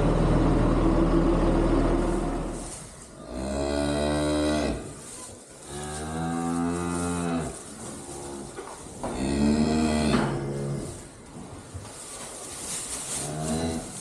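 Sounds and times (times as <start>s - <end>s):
cattle mooing: 9.2s - 11.0s.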